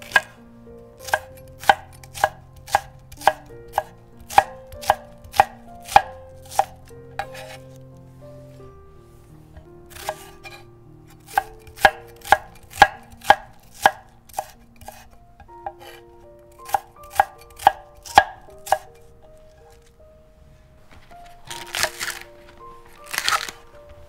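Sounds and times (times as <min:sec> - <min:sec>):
knife chopping on wooden board: 0:00.0 - 0:00.4, 0:01.0 - 0:07.7, 0:09.9 - 0:10.6, 0:11.2 - 0:16.0, 0:16.6 - 0:18.9.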